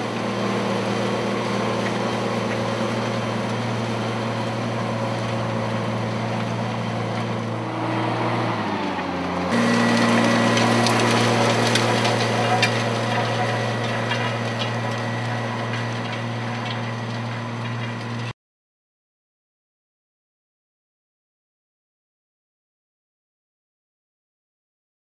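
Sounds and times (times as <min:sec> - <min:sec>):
tractor engine under load: 0:00.0 - 0:18.3
discs crunching over ground: 0:08.8 - 0:18.3.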